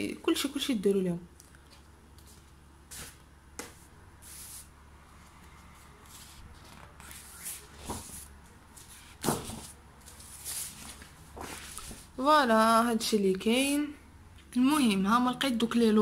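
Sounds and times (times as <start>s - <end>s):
thick pages flipping: 6.0s - 12.1s.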